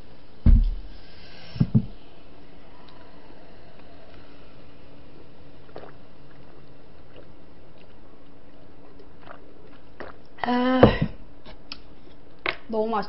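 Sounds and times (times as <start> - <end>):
voiced ahh breath: 0.8 - 6.3
person swallowing: 5.7 - 7.9, 9.0 - 11.2.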